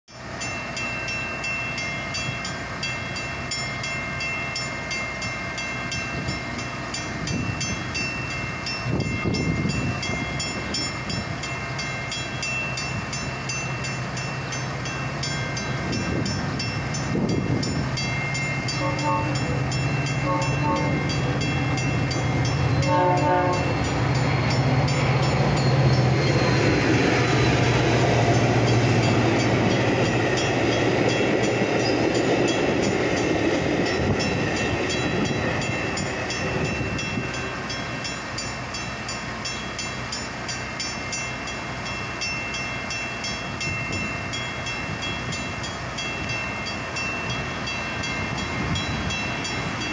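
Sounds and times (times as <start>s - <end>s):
crossing warning bell ringing: 0.1s - 49.9s
diesel locomotive hum: 0.1s - 49.9s
train cars rumbling past: 0.1s - 49.9s
train horn blasts: 18.7s - 19.6s, 20.2s - 21.2s, 22.8s - 23.8s.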